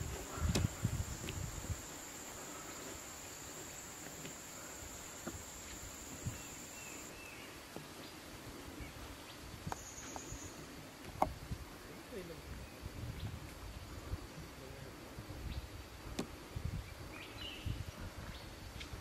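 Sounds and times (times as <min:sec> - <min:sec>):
high-pitched insect buzz: 0:00.0 - 0:07.1
low background hiss: 0:00.0 - 0:19.0
faint clicks: 0:00.2 - 0:01.5.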